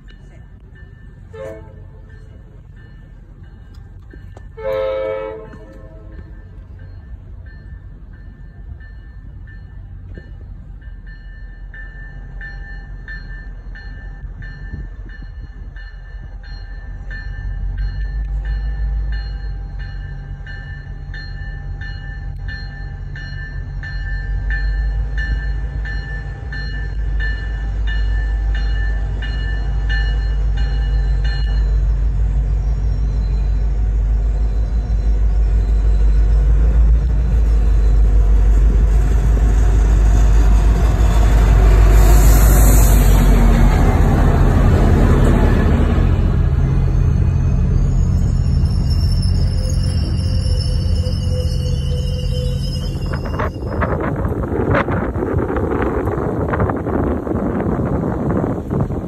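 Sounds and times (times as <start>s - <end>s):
locomotive low rumble: 0.0s - 59.0s
locomotive horn blast: 1.3s - 2.1s, 4.6s - 6.3s.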